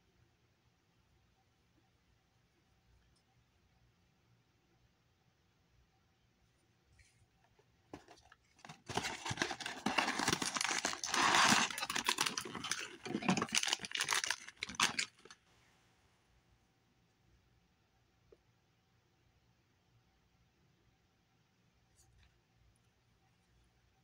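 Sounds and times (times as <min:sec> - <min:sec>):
rustling of plush toys: 0:07.9 - 0:15.4.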